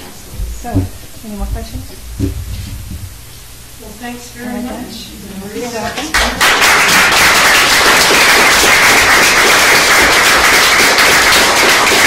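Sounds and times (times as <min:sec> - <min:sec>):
audience applauding: 0:06.1 - 0:12.0.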